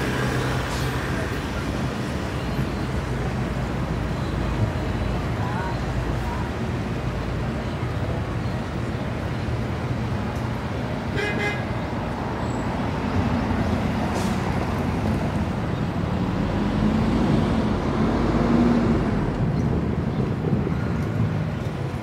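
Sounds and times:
road traffic rumble: 0.0s - 22.0s
vehicle engine: 0.0s - 22.0s.

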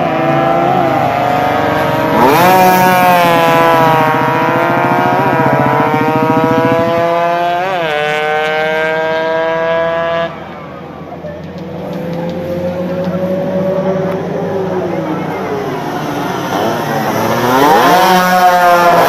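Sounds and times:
motorcycle engine screaming: 0.0s - 8.5s.

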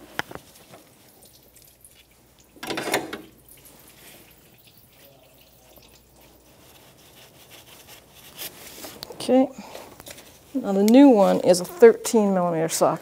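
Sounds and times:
coolant dripping and trickling: 0.0s - 8.7s.

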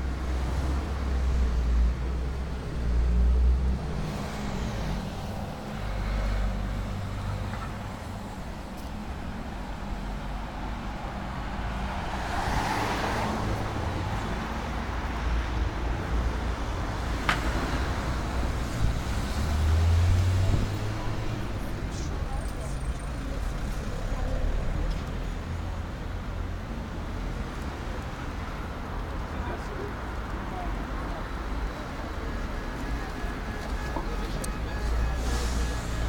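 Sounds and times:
cars driving past: 10.2s - 15.3s, 16.9s - 25.2s.

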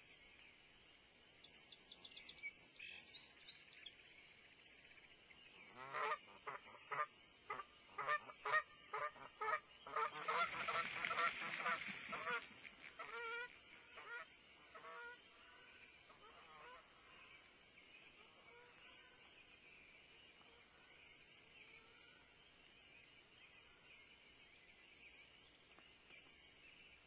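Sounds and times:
frogs peeping faintly: 0.0s - 27.0s
geese honking: 5.8s - 12.4s.

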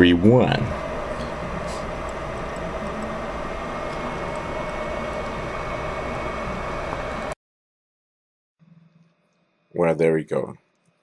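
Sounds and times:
background hiss and hum: 0.0s - 7.4s.

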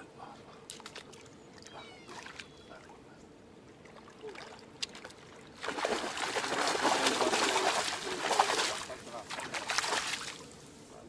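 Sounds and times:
fish thrashing and splashing: 4.2s - 10.4s.

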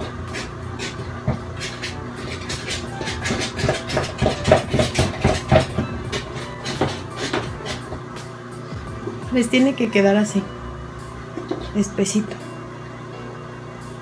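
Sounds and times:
spoon stirring in plastic jug: 0.0s - 8.0s.

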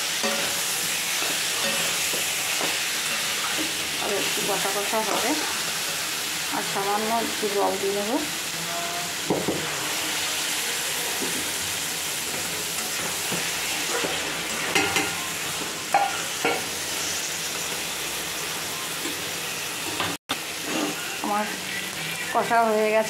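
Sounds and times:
spatula scraping pan: 0.0s - 6.2s
food sizzling in oil: 0.0s - 23.0s.

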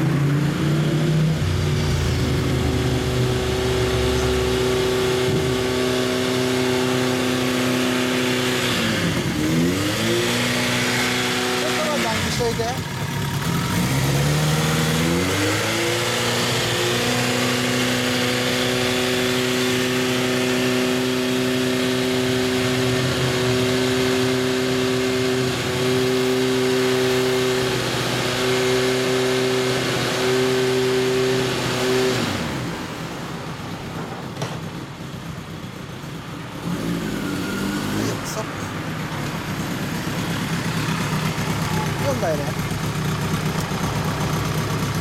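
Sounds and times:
motorcycle engine revving and idling: 0.0s - 45.0s.

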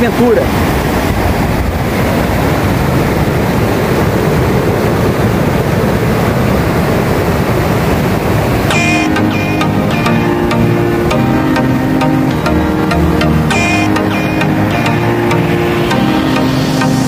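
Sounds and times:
river rushing over rocks: 0.0s - 17.0s
music: 8.7s - 17.0s.

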